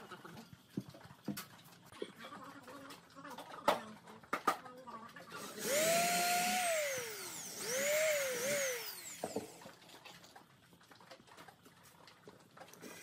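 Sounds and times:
electric drill boring into wood: 5.4s - 9.6s.

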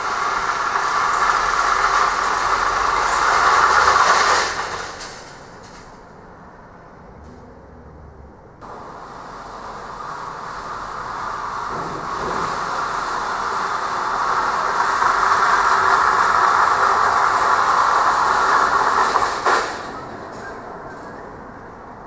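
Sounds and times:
metal roll cages rattling: 0.0s - 6.0s.

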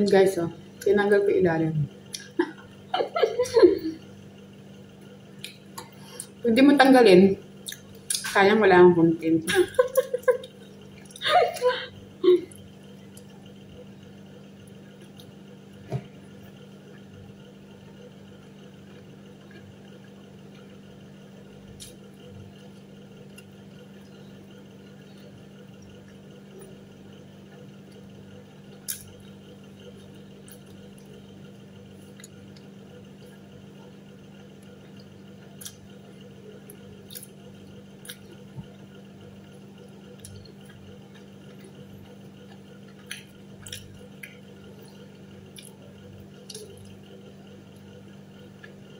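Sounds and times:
room hum: 0.0s - 48.9s
person chewing: 7.6s - 8.3s, 18.8s - 20.7s, 27.5s - 34.0s, 34.6s - 48.9s.

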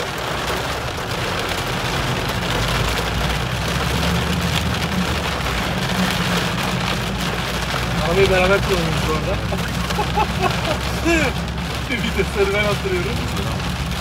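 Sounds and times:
engine and road rumble: 0.0s - 14.0s
heavy rain on car roof: 0.0s - 14.0s.

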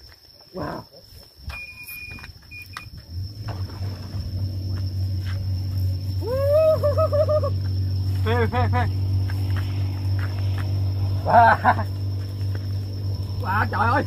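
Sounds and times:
electronic bite alarm beeps: 1.5s - 3.0s
wavering rising cry: 6.0s - 12.1s.

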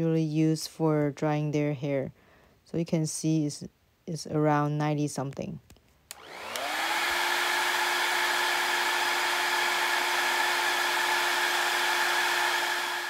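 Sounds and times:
hair dryer whine and air rush: 6.1s - 13.0s.

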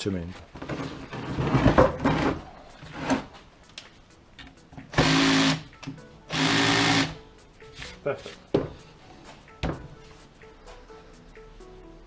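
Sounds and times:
hammer drill boring into cement: 5.0s - 5.6s, 6.3s - 7.2s.

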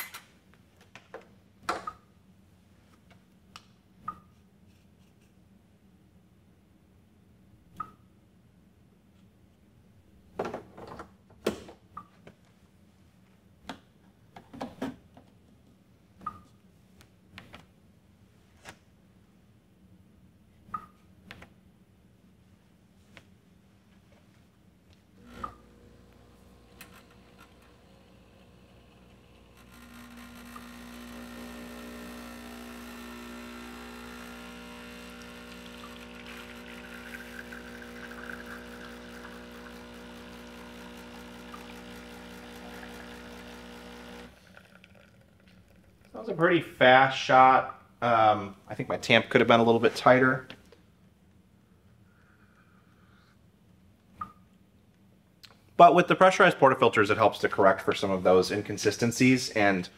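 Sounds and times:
espresso machine pump humming: 25.2s - 46.2s
espresso trickling into glasses: 25.2s - 46.2s.

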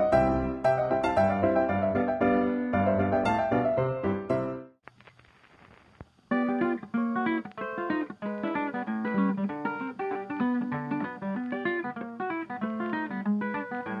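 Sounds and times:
lively instrumental music: 0.0s - 4.7s.

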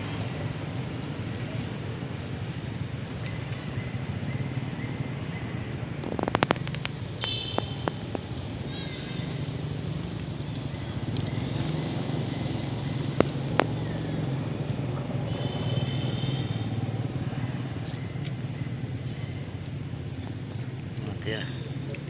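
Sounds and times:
engine running: 0.0s - 22.0s
sharp clicks: 6.0s - 8.7s, 13.0s - 14.0s.

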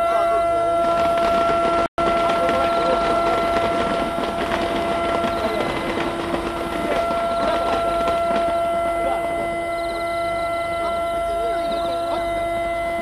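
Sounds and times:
distant voices murmuring: 0.0s - 13.0s
steady droning hum: 0.0s - 13.0s
faint high chirping: 9.7s - 12.4s.

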